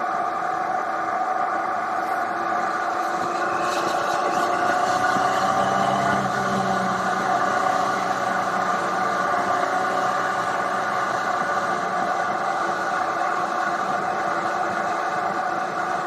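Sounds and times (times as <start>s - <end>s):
wind and road noise: 0.0s - 16.0s
motorcycle engine cruising: 2.9s - 12.6s.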